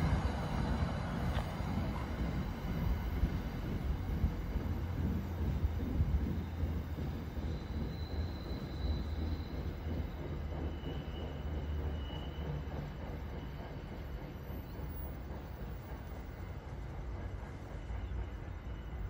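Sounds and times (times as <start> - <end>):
train rumbling on rails: 0.0 - 19.0
faint high squeals: 6.2 - 15.4.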